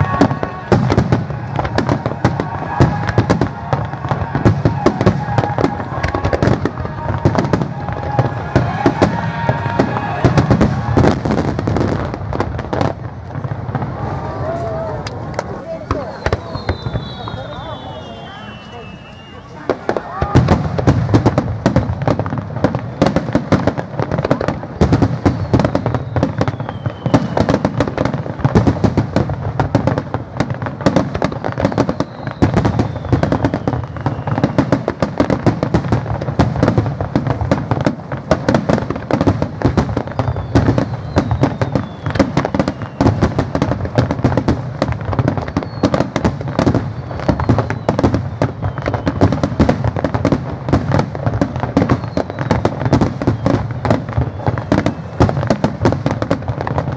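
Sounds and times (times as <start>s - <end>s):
fireworks bursting and crackling: 0.0s - 56.9s
faint falling whistles: 15.9s - 19.7s, 25.4s - 27.6s, 31.3s - 34.8s, 40.2s - 43.2s, 45.4s - 46.0s, 46.8s - 49.4s, 51.9s - 53.6s, 54.2s - 55.2s.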